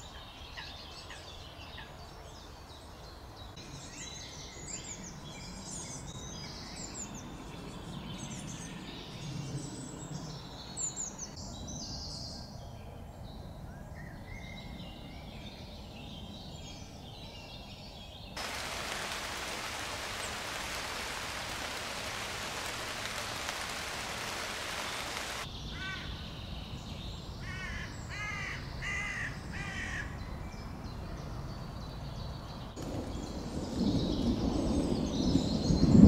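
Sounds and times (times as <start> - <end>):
rain falling on foliage: 18.4 - 25.5, 32.8 - 35.2.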